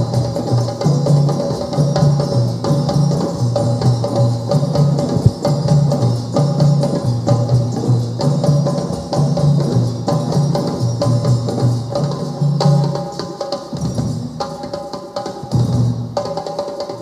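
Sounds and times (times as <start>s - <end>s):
hand drums playing rhythm: 0.0s - 17.0s
deep bass drum strokes: 5.1s - 5.4s.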